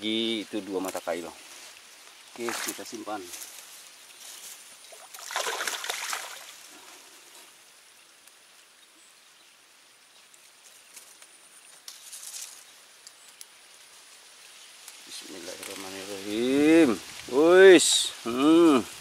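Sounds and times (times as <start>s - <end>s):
faint water hush: 0.0s - 8.0s
water splashing and trickling: 0.2s - 8.6s.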